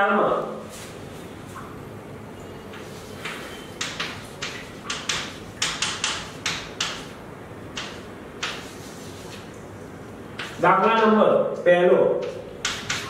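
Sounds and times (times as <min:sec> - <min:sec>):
chalk scratching on blackboard: 0:07.8 - 0:09.6, 0:10.4 - 0:10.6, 0:12.6 - 0:13.0.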